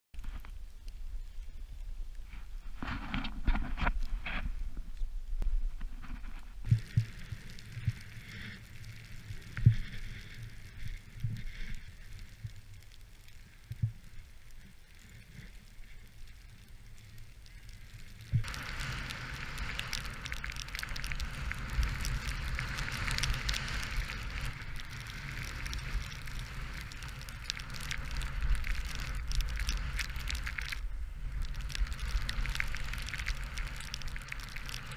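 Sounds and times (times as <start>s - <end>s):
wind rumbling on microphone: 0.2s - 34.9s
snowboard sliding through snow: 18.4s - 34.9s.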